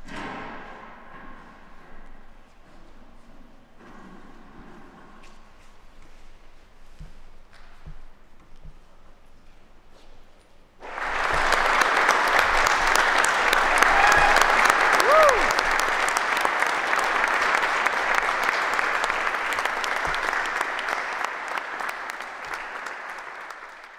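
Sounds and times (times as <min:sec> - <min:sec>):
audience applauding: 0:10.8 - 0:23.9
person whooping: 0:13.7 - 0:15.8.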